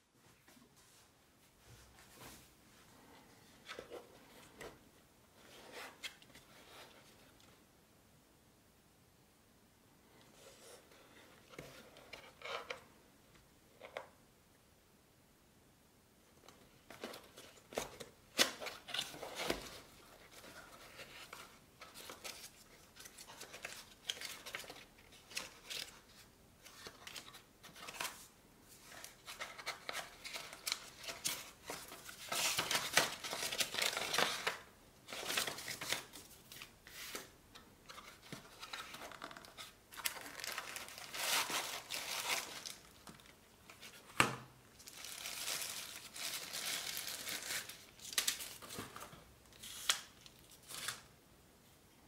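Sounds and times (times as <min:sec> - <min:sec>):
cardboard and paper rustling: 0:16.8 - 0:51.0
plastic bag crinkling: 0:44.8 - 0:48.6.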